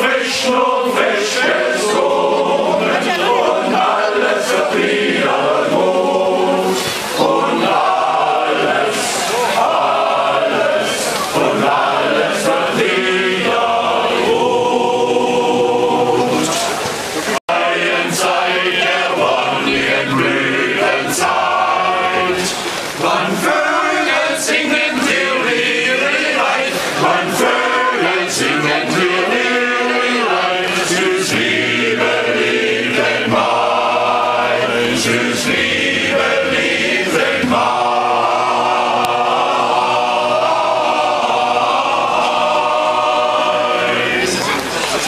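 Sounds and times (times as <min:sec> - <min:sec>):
men's choir singing unaccompanied: 0:00.0 - 0:45.0.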